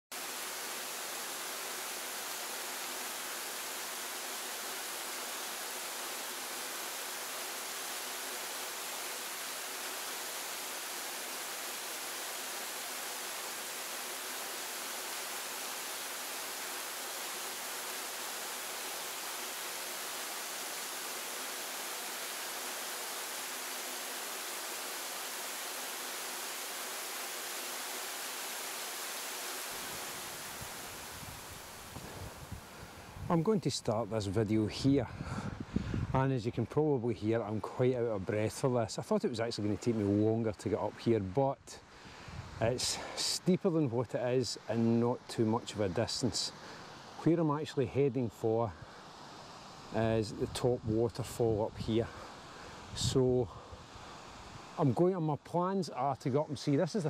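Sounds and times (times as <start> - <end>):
water rushing over rock: 0.1 - 34.0.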